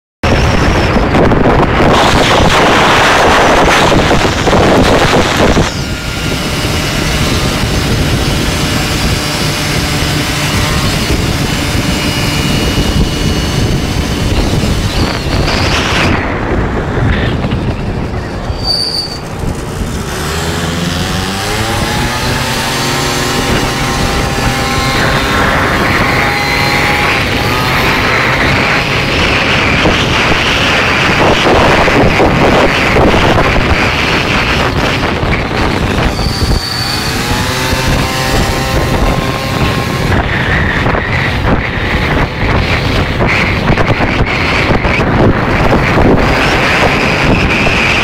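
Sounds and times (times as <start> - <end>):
wind blasting over microphone: 0.2 - 48.0
scooter engine running: 0.4 - 18.6, 19.2 - 48.0.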